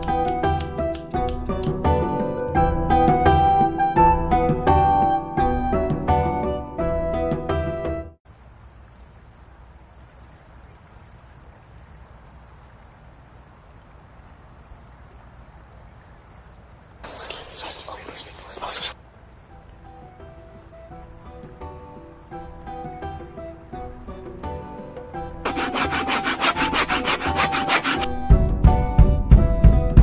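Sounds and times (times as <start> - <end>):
music: 0.0 - 8.2, 19.8 - 30.0
crickets chirping: 8.3 - 25.5.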